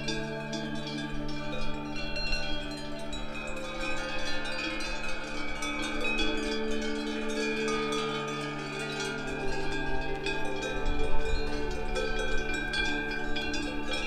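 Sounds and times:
cowbells jangling: 0.0 - 14.0.

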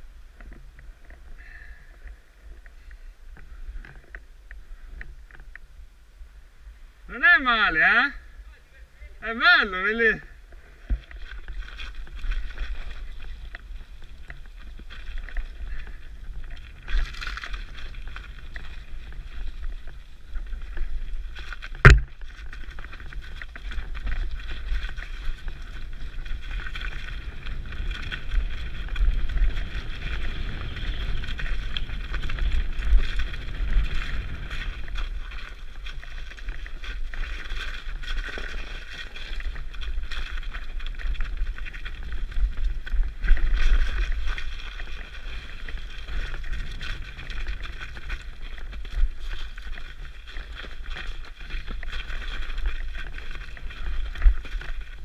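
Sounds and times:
wind rumble on microphone: 10.1 - 55.0
bike rolling and drivetrain noise: 10.4 - 55.0
sharp knock: 21.8 - 22.1.

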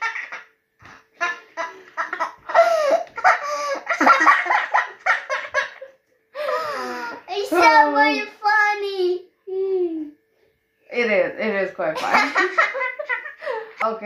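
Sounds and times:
woman and boy laughing: 1.2 - 6.6, 12.0 - 13.8.

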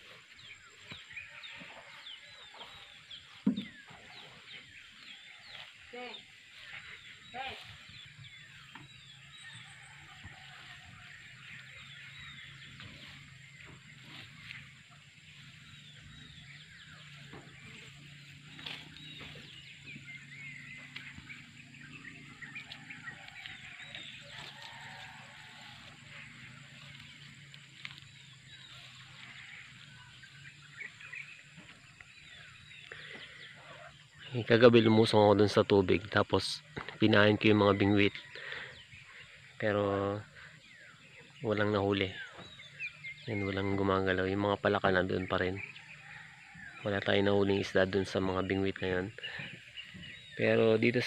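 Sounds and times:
small birds chirping: 0.0 - 51.0.

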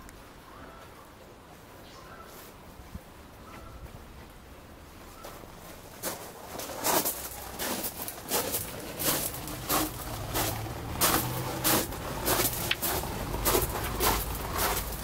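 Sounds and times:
footsteps on gravel: 5.2 - 15.0.

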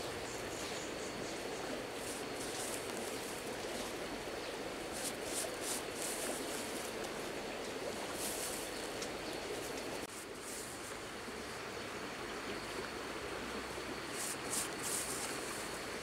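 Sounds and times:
steady outdoor hiss: 0.0 - 16.0
hands patting and brushing soil: 1.9 - 11.0, 14.1 - 15.8.

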